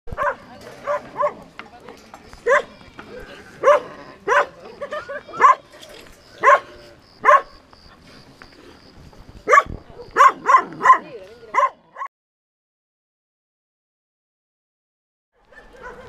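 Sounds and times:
dog barking: 0.1s - 1.4s, 2.4s - 2.8s, 3.6s - 4.6s, 5.3s - 5.7s, 6.4s - 7.6s, 9.4s - 12.1s, 15.4s - 16.0s.

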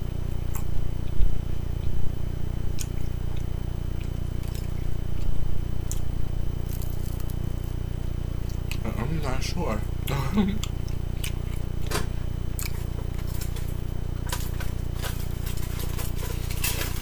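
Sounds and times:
low steady hum: 0.0s - 17.0s
chewing salad: 2.8s - 7.5s, 8.4s - 8.9s, 10.0s - 17.0s.

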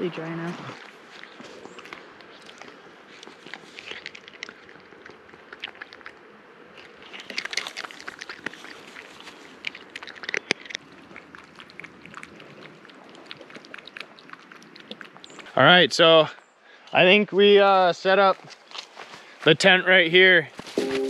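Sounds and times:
cat crunching dry kibble: 0.6s - 15.5s.

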